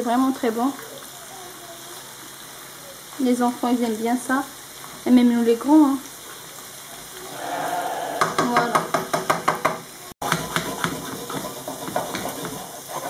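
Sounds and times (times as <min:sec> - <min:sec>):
fish sizzling in butter: 0:00.0 - 0:13.0
potatoes sizzling in pan: 0:00.0 - 0:13.0
spatula tapping frying pan: 0:08.2 - 0:13.0.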